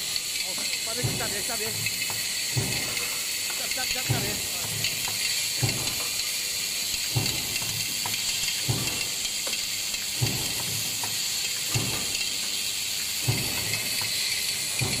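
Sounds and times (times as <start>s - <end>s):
machine thumping: 0.9s - 6.2s, 7.0s - 12.6s, 13.2s - 15.0s.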